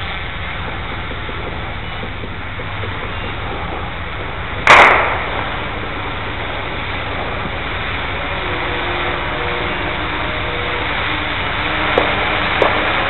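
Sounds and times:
faint steady tones: 0.0s - 13.0s
steady background noise: 0.0s - 13.0s
loud sharp bang: 4.6s - 5.6s.

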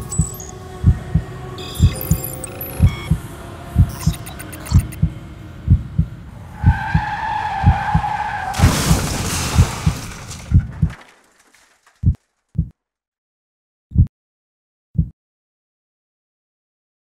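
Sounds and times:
heartbeat: 0.0s - 3.2s, 3.8s - 7.0s, 7.6s - 8.1s, 12.0s - 12.7s
car crash: 6.3s - 12.3s
tyres screeching: 6.4s - 10.4s.

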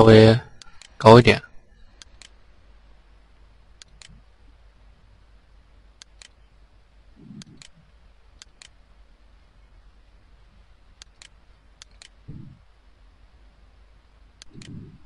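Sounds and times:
faint steady low hum: 0.0s - 15.0s
computer mouse clicking: 2.0s - 2.4s, 3.8s - 4.2s, 7.3s - 7.8s, 8.4s - 8.8s, 11.0s - 12.3s, 14.4s - 15.0s.

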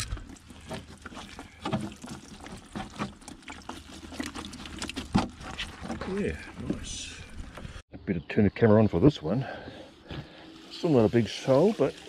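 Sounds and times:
water trickling and dripping: 0.0s - 5.7s, 10.0s - 12.0s
small splashes: 0.0s - 6.6s.

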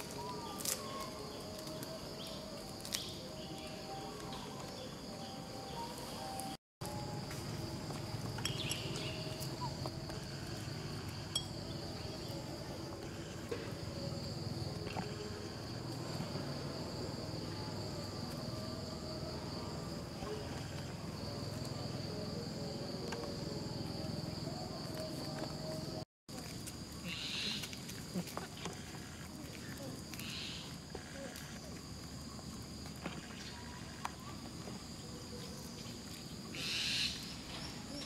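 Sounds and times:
high-pitched insect drone: 0.0s - 26.0s.

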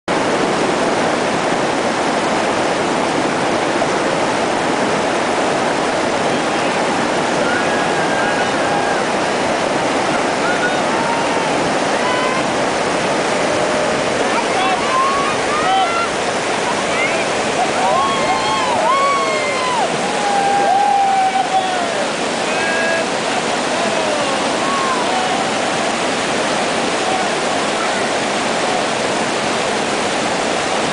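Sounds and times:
river water rushing: 0.1s - 30.9s
people calling out: 13.3s - 25.7s.

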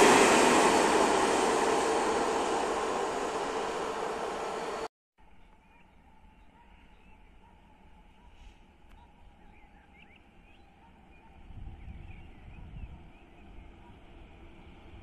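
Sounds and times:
electric train approaching: 0.0s - 4.9s.

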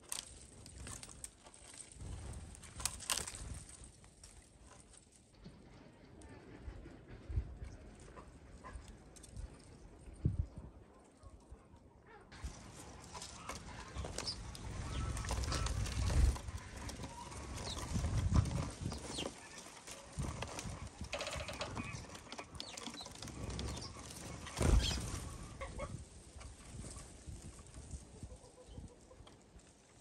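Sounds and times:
sparrows chirping: 12.6s - 19.7s, 21.2s - 25.0s.

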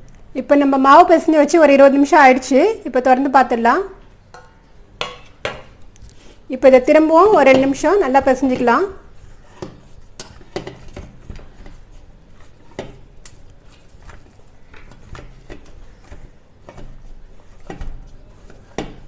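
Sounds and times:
dough kneaded in steel bowl: 6.4s - 19.0s.

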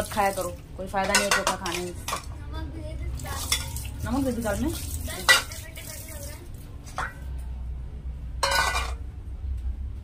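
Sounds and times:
steel utensils clinking: 0.0s - 2.3s, 3.4s - 5.7s, 6.9s - 7.3s, 8.4s - 9.0s.

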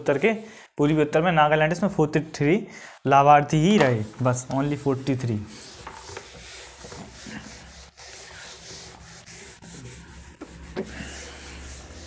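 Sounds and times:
scratchy rubbing: 3.8s - 12.0s.

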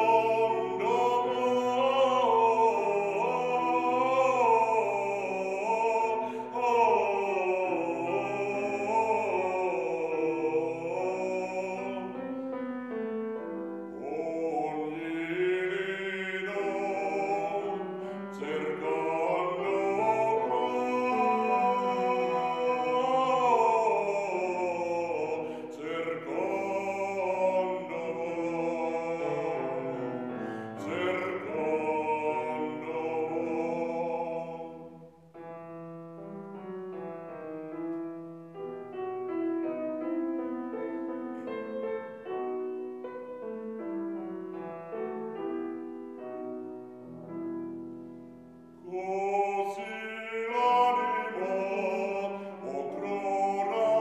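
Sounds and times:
man singing opera: 0.0s - 12.5s, 13.8s - 35.3s, 48.7s - 54.0s
grand piano: 0.0s - 54.0s.

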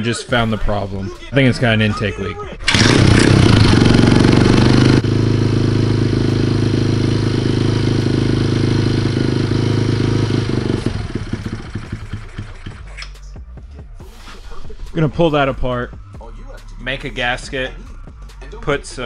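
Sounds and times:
motorcycle engine running: 2.7s - 13.6s.

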